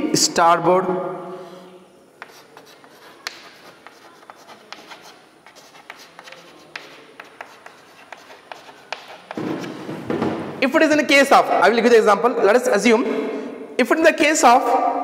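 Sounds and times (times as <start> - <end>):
chalk tapping and scratching on board: 2.2 - 10.0.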